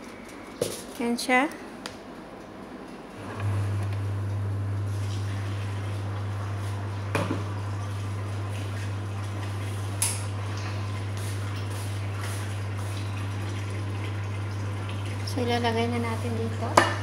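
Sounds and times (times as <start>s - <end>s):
low hum: 3.2s - 11.1s.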